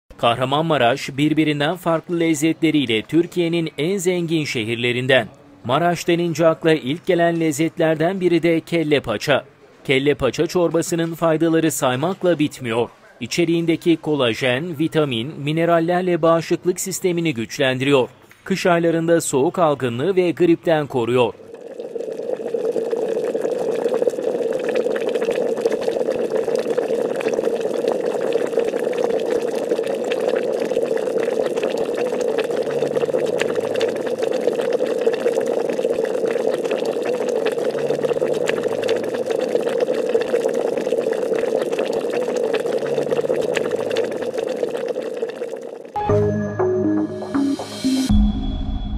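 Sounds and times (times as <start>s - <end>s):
hot liquid bubbling: 20.8s - 46.0s.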